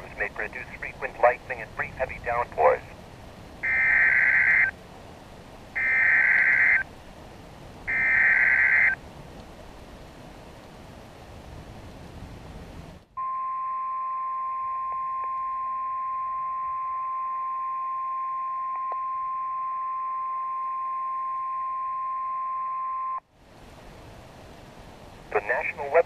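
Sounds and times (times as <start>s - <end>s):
steady high alarm beep: 7.9s - 9.0s.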